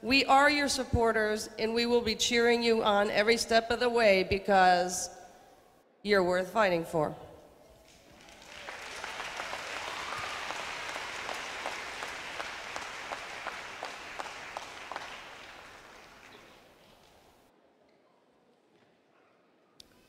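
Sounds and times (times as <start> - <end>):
crowd applauding: 7.8 - 17.4.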